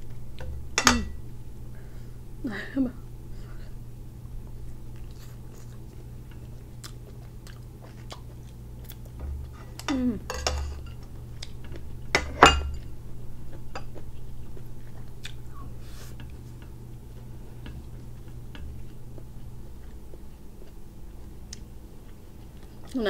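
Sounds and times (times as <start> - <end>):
person chewing: 4.4 - 10.1, 10.9 - 11.9, 12.8 - 23.0.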